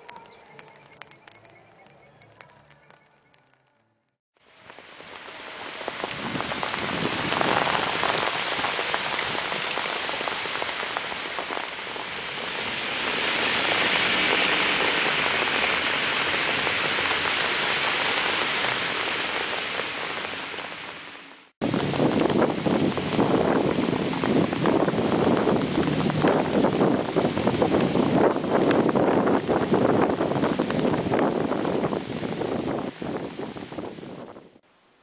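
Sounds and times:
heavy rain falling: 4.4 - 34.4.

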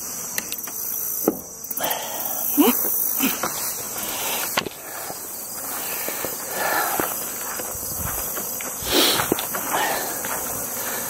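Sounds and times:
high insect buzz: 0.0 - 11.0
footsteps: 2.8 - 11.0.

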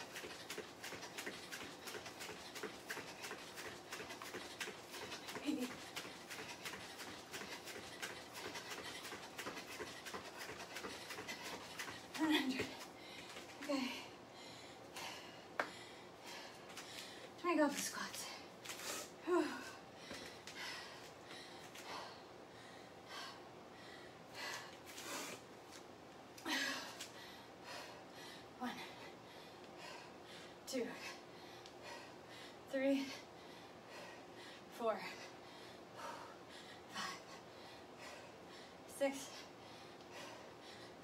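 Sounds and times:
hard breathing: 0.0 - 17.4, 26.5 - 41.0.

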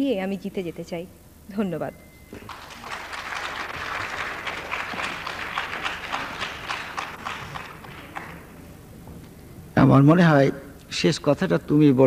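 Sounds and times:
audience applauding: 2.3 - 8.9.

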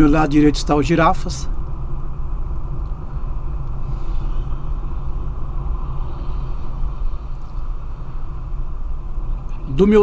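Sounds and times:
car road and engine noise: 0.0 - 10.0.

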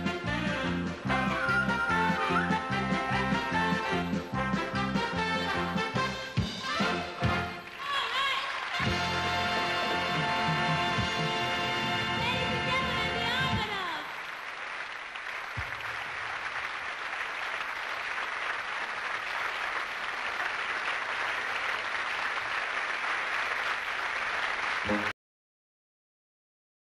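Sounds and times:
dance music: 0.0 - 14.0
audience applauding: 7.2 - 11.4, 13.6 - 25.2.

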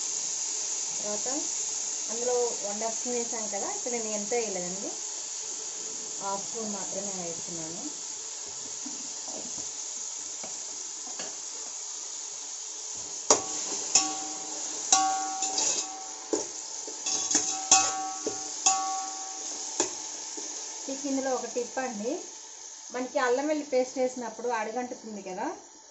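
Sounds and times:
vegetables sizzling in oil: 0.0 - 25.9
metal spatula knocking on pot: 13.3 - 16.5, 17.1 - 20.0.

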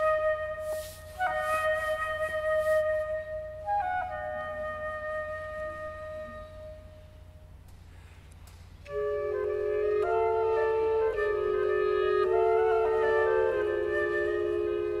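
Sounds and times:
solo flute playing: 0.0 - 7.4, 8.9 - 15.0
clarinets playing soft chords: 8.8 - 15.0.

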